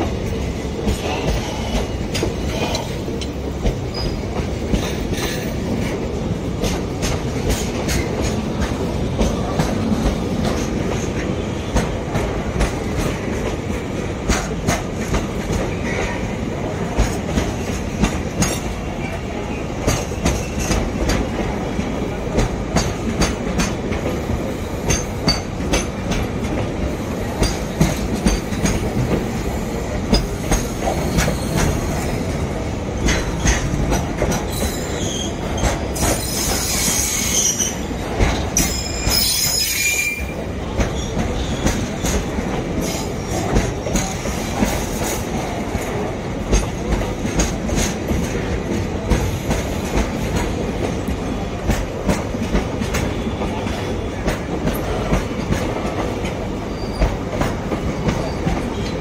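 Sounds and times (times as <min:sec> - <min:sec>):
high-pitched wheel squeal: 0:36.2 - 0:37.7, 0:38.6 - 0:40.3.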